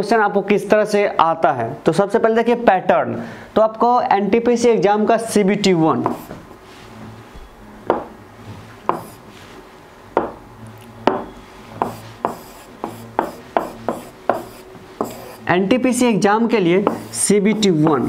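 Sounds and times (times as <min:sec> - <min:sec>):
stylus strokes on screen: 0:08.9 - 0:09.6, 0:11.5 - 0:15.5, 0:16.8 - 0:17.8.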